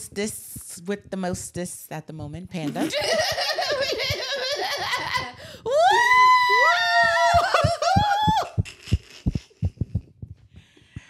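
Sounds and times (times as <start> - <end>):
high vocal whoop: 5.7 - 8.6.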